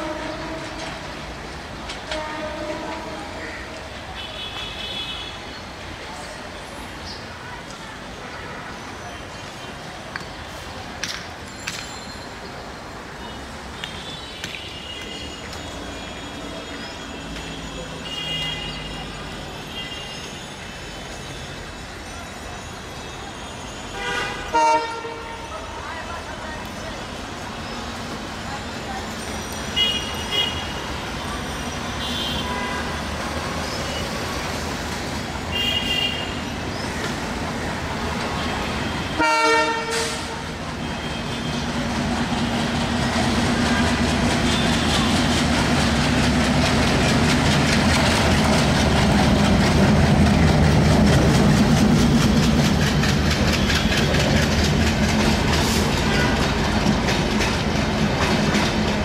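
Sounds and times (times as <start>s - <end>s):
locomotive horn blast: 2.1s - 3.4s, 24.0s - 25.4s, 38.9s - 41.7s
locomotive engine running heavily: 40.0s - 59.0s
train wheels clicking over rail joints: 42.0s - 59.0s.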